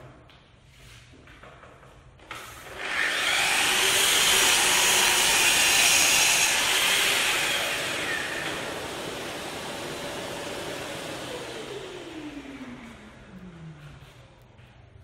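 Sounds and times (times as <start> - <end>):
mitre saw cutting wood: 2.6 - 12.4
dust extractor hissing: 2.7 - 13.2.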